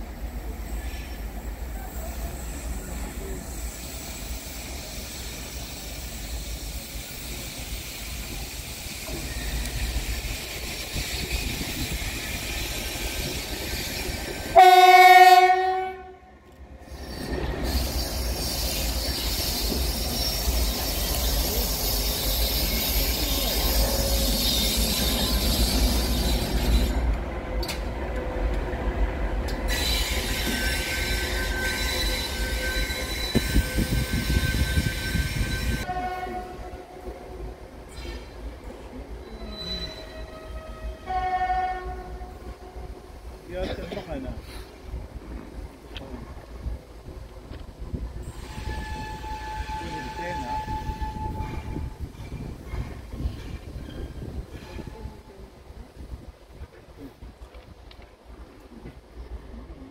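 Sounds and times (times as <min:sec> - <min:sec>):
locomotive horn blast: 0:14.6 - 0:16.3, 0:35.7 - 0:37.5, 0:40.0 - 0:43.0.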